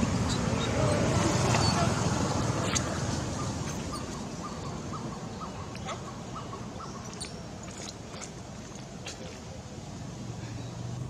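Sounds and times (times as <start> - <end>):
outdoor background noise: 0.0 - 11.0
animal chirping: 2.4 - 7.9.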